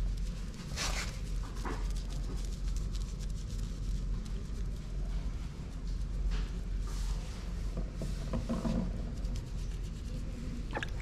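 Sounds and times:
steady low rumble: 0.0 - 7.8
fingers rubbing wet fur: 0.0 - 11.0.

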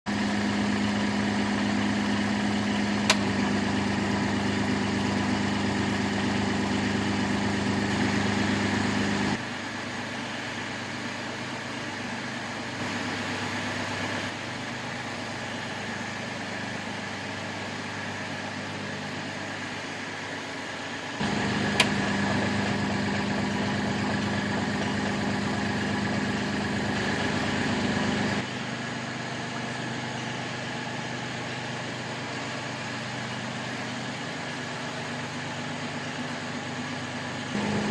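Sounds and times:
excavator engine idling: 0.1 - 37.9
sharp clicks: 21.7 - 22.0.

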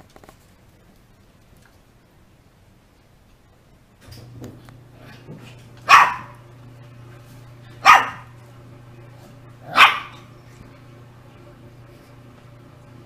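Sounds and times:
low steady hum: 0.0 - 13.0
dog barking: 5.8 - 6.4, 7.8 - 8.4, 9.6 - 10.3.

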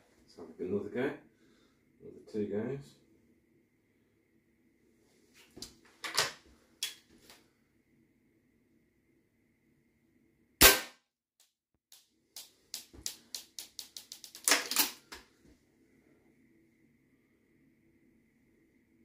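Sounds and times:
air rifle shot: 10.6 - 11.0.

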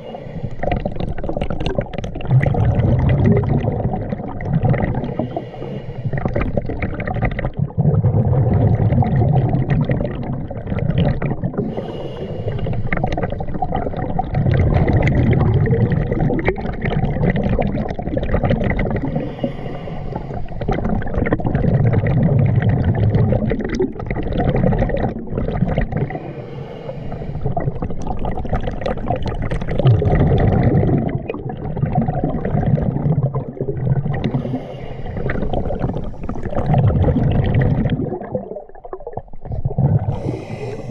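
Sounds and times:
exhaled bubbles gurgling: 0.0 - 40.9
regulator inhalation hiss: 5.1 - 6.2, 11.7 - 13.0, 19.1 - 20.6, 34.4 - 35.5.

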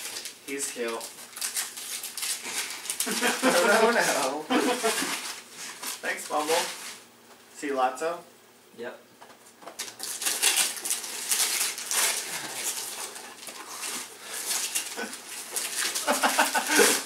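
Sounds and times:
wrapping paper crackling and tearing: 0.0 - 7.0, 9.7 - 17.0.

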